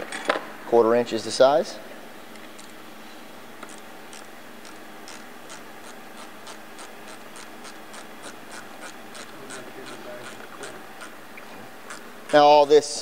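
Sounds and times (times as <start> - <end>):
ratchet clicking: 3.6 - 11.2, 11.8 - 12.5.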